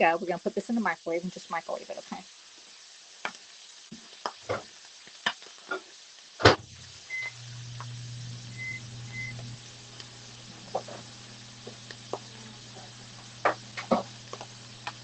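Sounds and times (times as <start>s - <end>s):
microwave humming: 6.4s - 15.0s.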